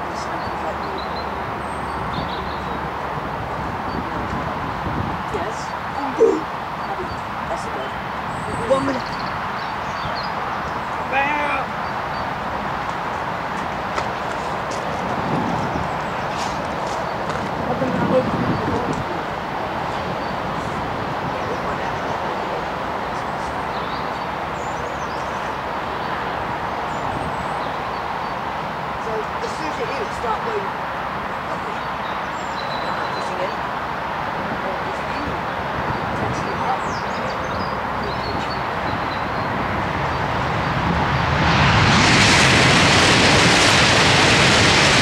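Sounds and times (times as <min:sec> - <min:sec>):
high-speed train passing: 0:00.0 - 0:32.3, 0:32.9 - 0:45.0
rushing outdoor noise: 0:00.0 - 0:45.0
bird chirps: 0:00.2 - 0:02.9, 0:23.1 - 0:26.1, 0:31.7 - 0:33.6.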